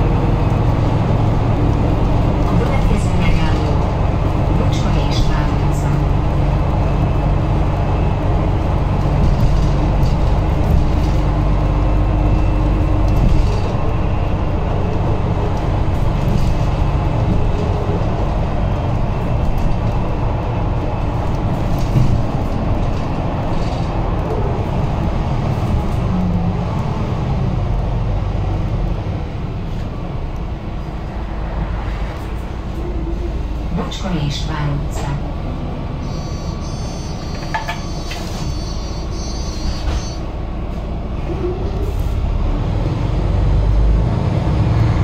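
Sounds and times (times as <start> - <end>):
interior rattles: 0.0 - 26.9
bus engine hum: 0.0 - 45.0
road noise: 0.0 - 45.0.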